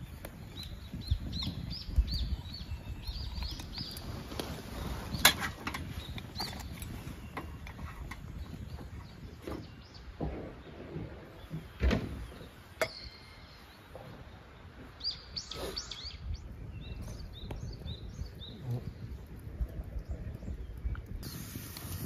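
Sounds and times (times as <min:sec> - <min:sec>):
small bird chirping: 0:00.0 - 0:04.2, 0:14.9 - 0:21.5.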